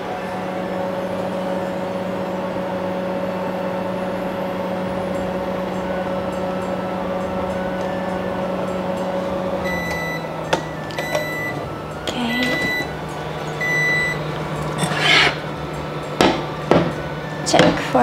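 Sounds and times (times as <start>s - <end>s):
microwave oven humming: 0.0s - 18.0s
microwave clicks: 6.3s - 14.8s.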